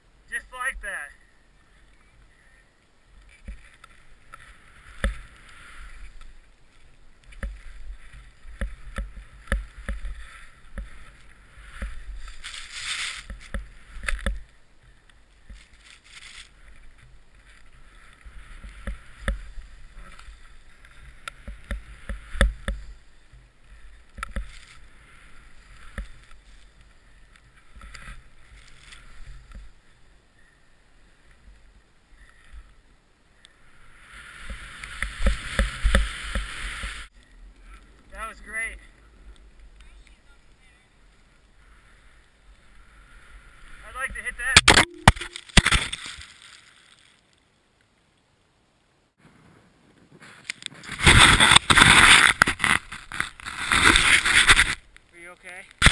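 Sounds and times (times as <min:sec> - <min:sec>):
hissing snow spray: 0:10.1 - 0:14.0, 0:33.6 - 0:37.1.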